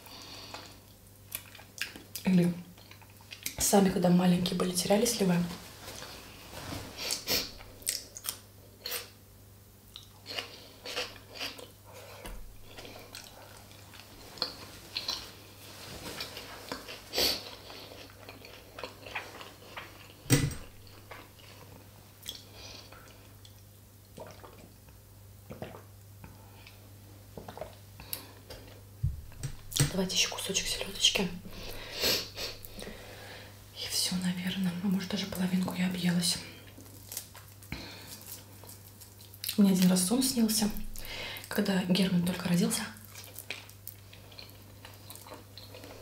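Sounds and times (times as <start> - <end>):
person chewing: 0.0 - 3.6, 7.0 - 9.2, 9.9 - 15.5, 16.1 - 26.8, 43.0 - 46.0.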